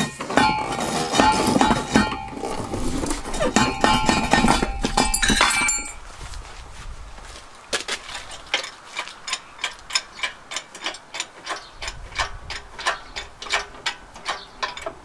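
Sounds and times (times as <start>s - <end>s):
steel parts clanking: 0.0s - 6.1s, 8.4s - 15.0s
sharp high ticks: 8.5s - 15.0s.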